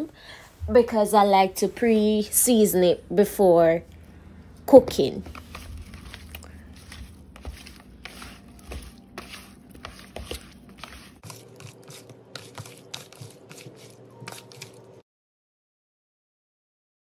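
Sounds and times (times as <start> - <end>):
shrimp squishing by hand: 5.3 - 15.0.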